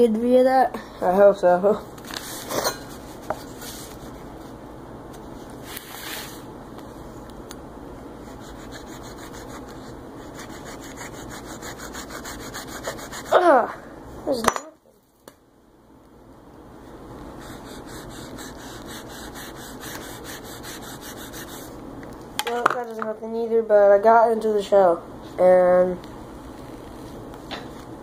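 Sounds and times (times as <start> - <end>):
knife sawing and scraping: 8.2 - 13.4, 17.4 - 21.7.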